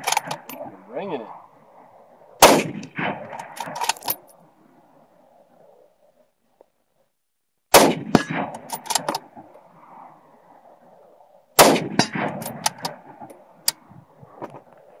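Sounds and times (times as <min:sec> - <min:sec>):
rolling echo of gunshots: 0:02.4 - 0:03.9, 0:07.7 - 0:10.1, 0:11.6 - 0:13.3
rifle shots: 0:02.4 - 0:04.1, 0:07.7 - 0:09.4, 0:11.6 - 0:13.3.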